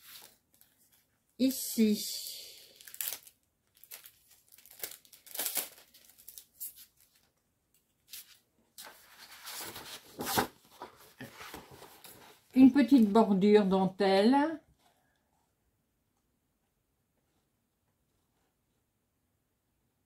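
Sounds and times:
packaging crinkling and rustling: 2.6 - 7.4.

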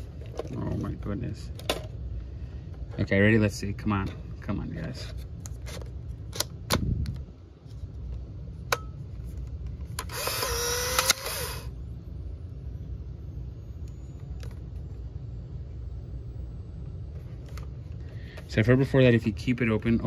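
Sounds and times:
camera clicks: 10.0 - 11.6
camera motor whirring: 10.0 - 11.8.

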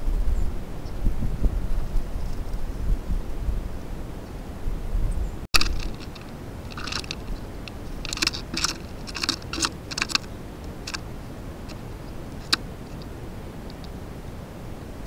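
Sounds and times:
birds pecking taps: 5.6 - 14.0.

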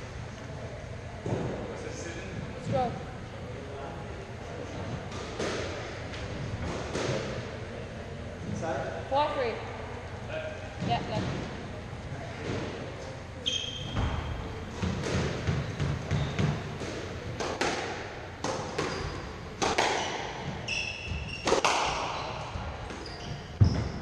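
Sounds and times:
shoes squeaking on wooden floor: 13.4 - 14.3, 15.3 - 16.8, 18.7 - 24.0
squash ball cracks: 14.8 - 20.4, 21.4 - 22.2.

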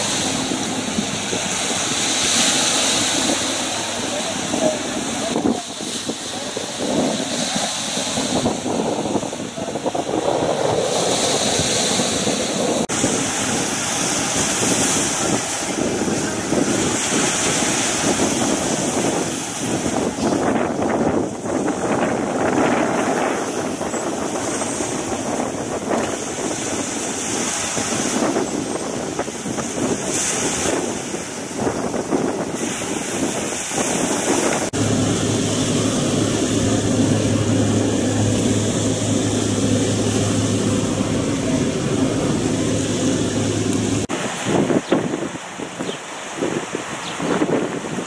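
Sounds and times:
boat motor: 0.0 - 46.3
sea noise: 0.0 - 48.0
wind buffeting microphone: 0.0 - 48.0
low mechanical hum: 34.8 - 44.1.

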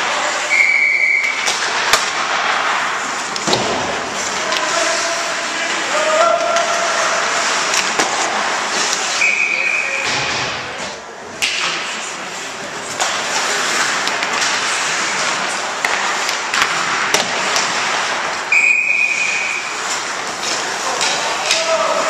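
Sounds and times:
skates on ice: 0.0 - 22.0
referee's whistle: 0.5 - 1.4, 9.2 - 10.0, 18.5 - 19.7.

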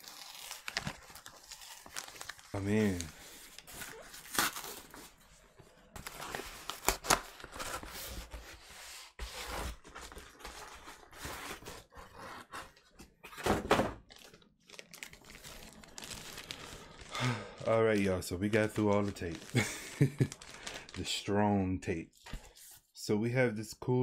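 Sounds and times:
packing tape tearing: 0.0 - 5.0.

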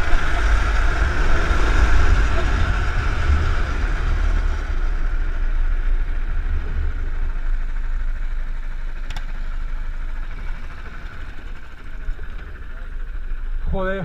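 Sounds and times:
wind rumble on microphone: 0.0 - 8.0
go-kart engine running: 0.0 - 14.0.

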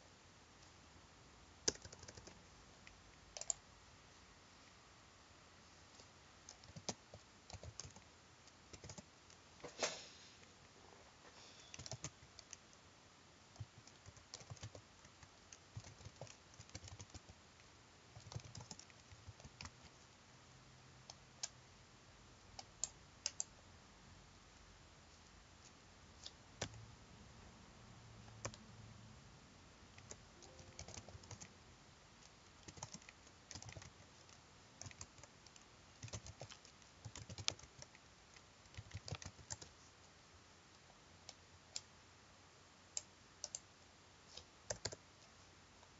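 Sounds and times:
faint typing on keyboard: 1.6 - 3.7, 5.9 - 9.8, 11.6 - 12.9, 13.5 - 20.2, 20.9 - 21.7, 22.5 - 23.6, 25.1 - 27.0, 28.2 - 28.8, 29.9 - 42.0, 42.9 - 45.9.

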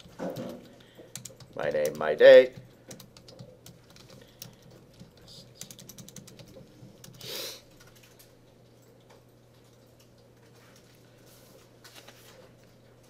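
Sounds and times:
typing on a computer keyboard: 0.0 - 8.3
low steady hum: 0.0 - 13.0.

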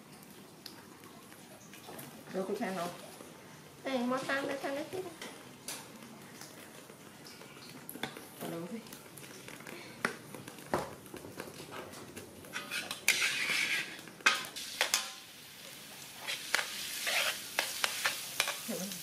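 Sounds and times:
garlic sizzling in hot oil: 12.4 - 19.0
metal ladle scraping a wok: 12.5 - 15.0, 16.2 - 18.6.

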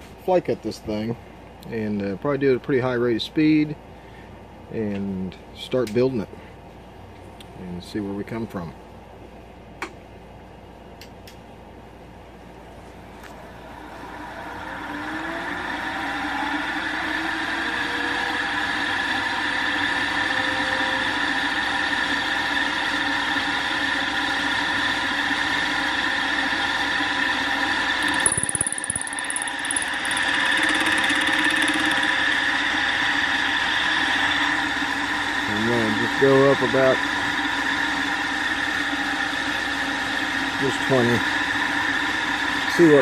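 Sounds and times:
milling spindle whine: 14.0 - 43.0
cutter face-cutting aluminum: 28.0 - 32.5.

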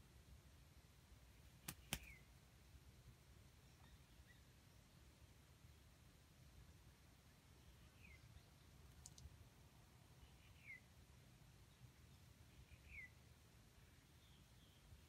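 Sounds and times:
faint outdoor background: 0.0 - 15.0
bird chirping: 3.6 - 4.9, 7.3 - 9.3, 10.1 - 10.9, 11.5 - 13.2, 13.8 - 15.0.

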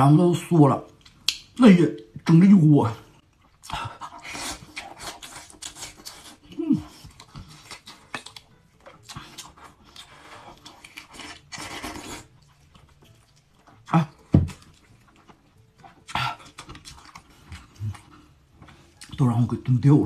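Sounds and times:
wet chewing and mouth sounds: 0.7 - 2.4, 3.2 - 19.3
person humming: 6.5 - 6.9.

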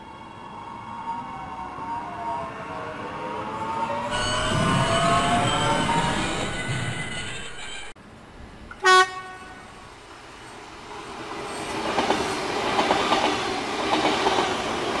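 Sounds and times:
model train horn toot: 8.8 - 9.6.

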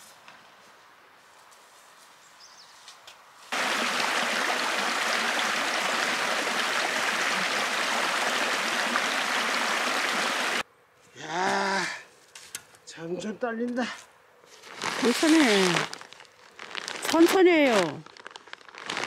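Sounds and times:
stream rushing over rocks: 3.5 - 10.6.

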